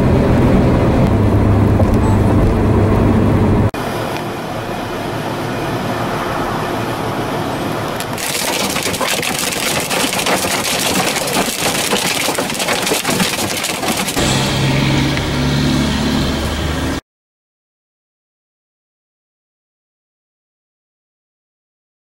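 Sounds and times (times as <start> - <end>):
hail pelting a car: 8.0 - 14.2.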